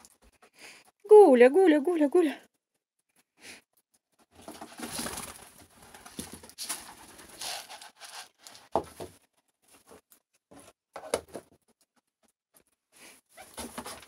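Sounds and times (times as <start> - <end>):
pigeons rustling: 4.2 - 10.6
pigeons pecking on wooden boards: 4.3 - 9.2.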